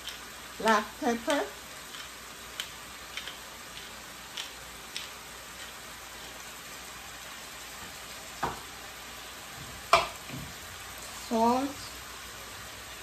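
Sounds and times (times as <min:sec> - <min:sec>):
vegetables sizzling in oil: 0:00.0 - 0:13.0
knock: 0:08.4 - 0:08.6.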